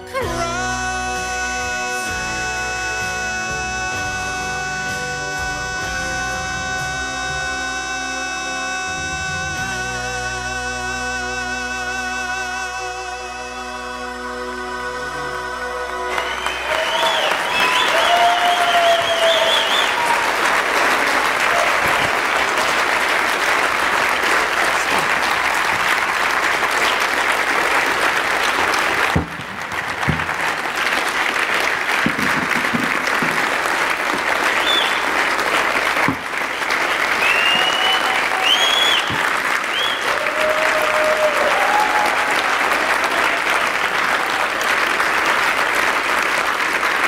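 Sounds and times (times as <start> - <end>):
held music chord: 0.0 - 16.7
congregation applauding: 15.8 - 47.0.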